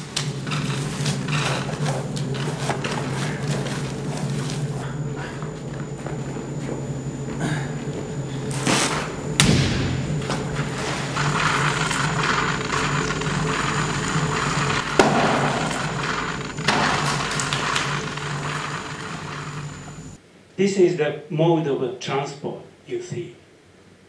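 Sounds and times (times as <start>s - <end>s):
potter's wheel hum: 0.0s - 20.2s
heavy thuds: 0.3s - 16.9s.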